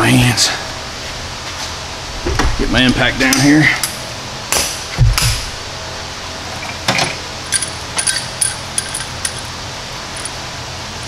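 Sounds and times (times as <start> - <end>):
steady background hum: 0.0 - 11.0
metal tools knocking: 6.6 - 9.5
light metallic clinks: 7.5 - 10.4.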